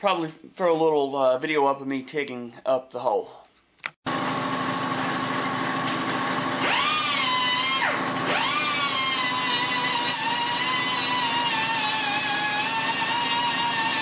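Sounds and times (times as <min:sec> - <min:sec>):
rotary tool grinding steel: 0:06.6 - 0:14.0.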